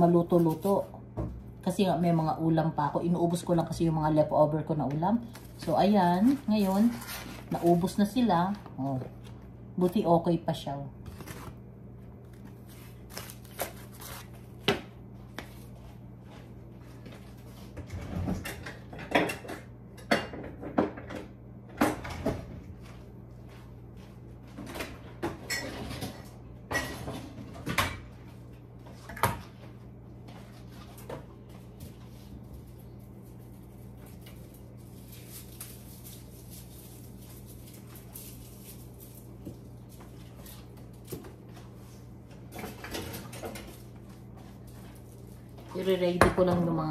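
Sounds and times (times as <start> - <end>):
items clattering on tiled counter: 17.8 - 22.5, 42.5 - 43.9.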